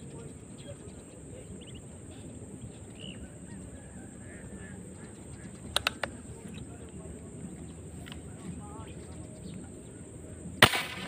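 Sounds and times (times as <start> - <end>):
faint bird chirps: 0.0 - 10.4
steady high hiss: 0.0 - 11.0
sharp clicks: 5.6 - 6.6.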